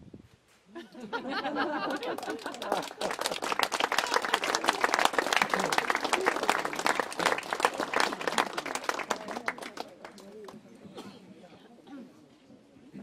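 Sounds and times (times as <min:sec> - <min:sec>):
audience applauding: 0:01.6 - 0:10.6
voices in crowd: 0:02.7 - 0:13.0.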